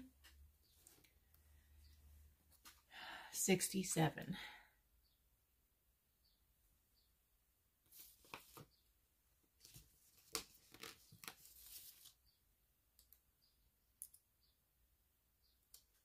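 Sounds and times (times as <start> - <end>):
paper rustle: 7.9 - 8.7, 9.6 - 12.2.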